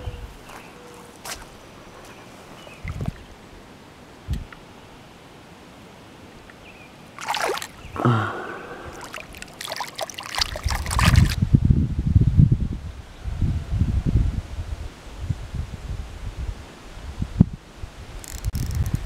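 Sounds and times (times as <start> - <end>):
hands splashing in water: 7.2 - 11.4.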